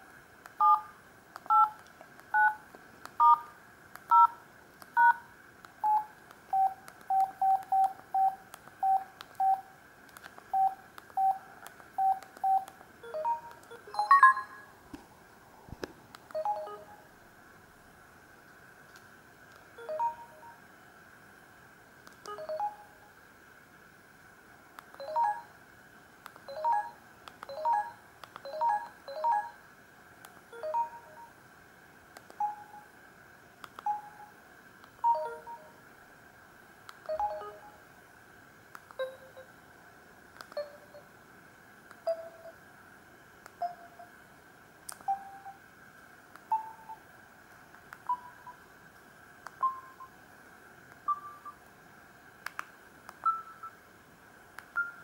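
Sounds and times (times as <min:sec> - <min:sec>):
two-note keypad beeps: 0:12.0 - 0:14.7.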